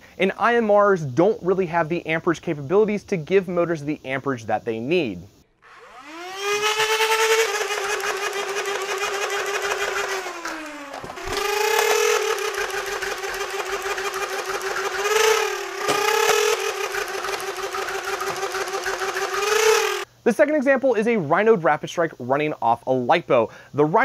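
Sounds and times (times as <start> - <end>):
blaster pusher clatter: 5.6 - 20.1
toy blaster motor whine: 5.6 - 20.1.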